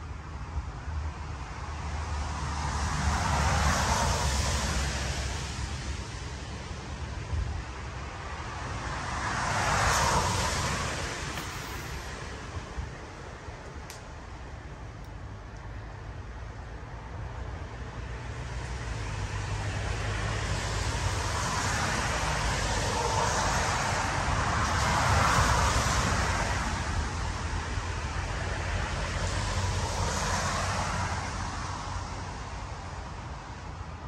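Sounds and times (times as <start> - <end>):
road vehicle passing: 7.7 - 15.4.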